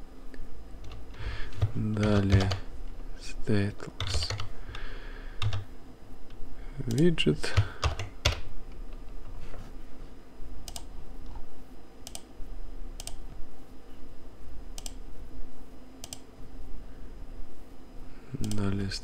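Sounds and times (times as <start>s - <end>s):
faint hum: 0.0s - 19.0s
keyboard and mouse clicks: 0.8s - 2.6s, 6.9s - 8.4s, 10.6s - 11.4s, 12.0s - 12.3s, 13.0s - 13.3s, 14.8s - 15.0s, 16.0s - 16.3s.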